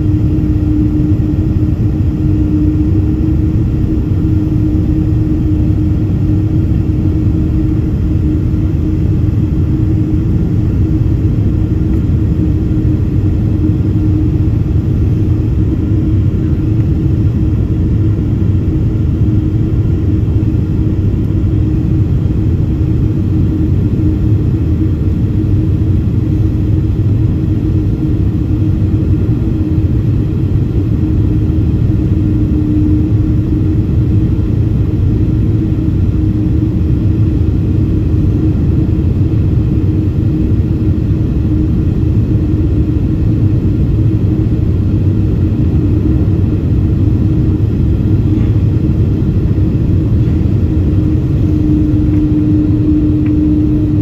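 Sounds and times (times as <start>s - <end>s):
aircraft cabin engine rumble: 0.0s - 54.0s
constant hum: 0.0s - 54.0s.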